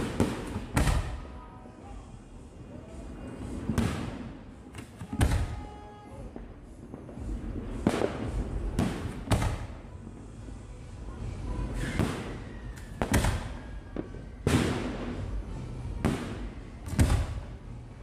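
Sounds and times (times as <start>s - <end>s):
fireworks exploding: 5.1s - 9.8s, 11.9s - 15.2s.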